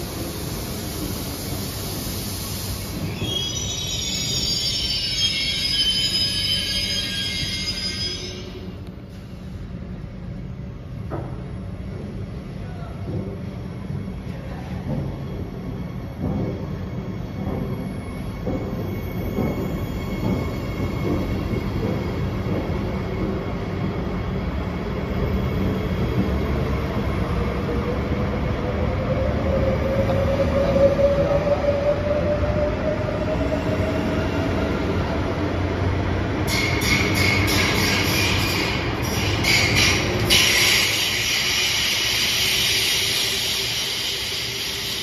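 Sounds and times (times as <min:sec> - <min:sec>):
train wheels rumbling: 0:00.0 - 0:45.0
high wheel squeal: 0:03.0 - 0:08.8, 0:36.5 - 0:45.0.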